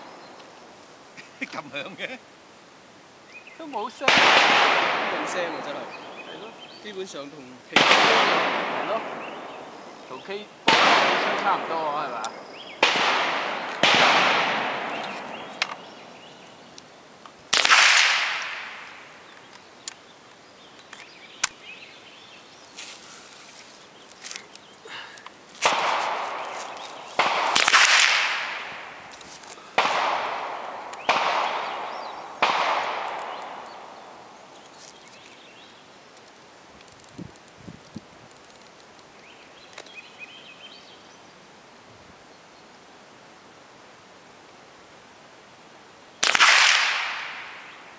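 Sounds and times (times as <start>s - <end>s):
rifle shots with echo: 4.0s - 6.7s, 7.7s - 9.9s, 10.6s - 16.2s, 17.5s - 19.2s, 25.6s - 34.5s, 46.2s - 47.8s
faint clicks: 36.1s - 40.0s.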